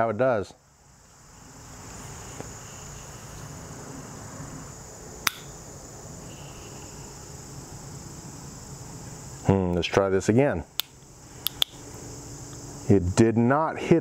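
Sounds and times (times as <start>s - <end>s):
insects droning: 0.0s - 14.0s
revolver hammer click: 5.3s - 5.5s, 10.8s - 11.8s.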